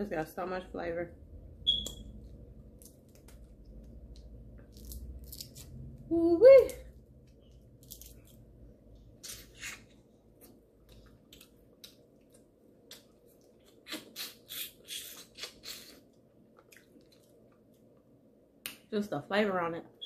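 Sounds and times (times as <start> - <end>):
wet lip smacks and sucks: 13.7 - 17.3.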